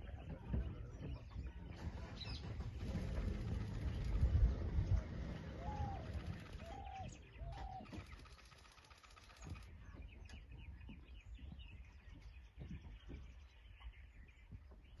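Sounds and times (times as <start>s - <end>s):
low rumble: 0.0s - 7.3s
dove cooing: 5.4s - 8.0s.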